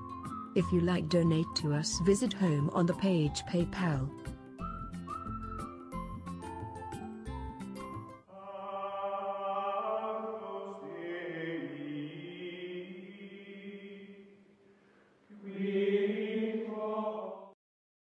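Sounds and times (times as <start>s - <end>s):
voices singing held chords: 8.3s - 14.4s, 15.3s - 17.6s.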